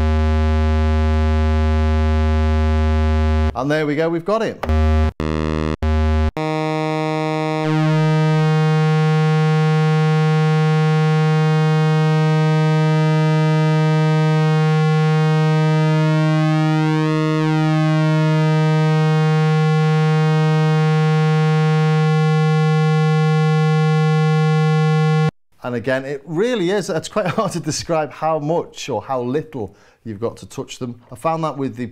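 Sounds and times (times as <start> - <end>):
synthesizer low buzzy note: 0.0 - 3.6, 4.6 - 25.3.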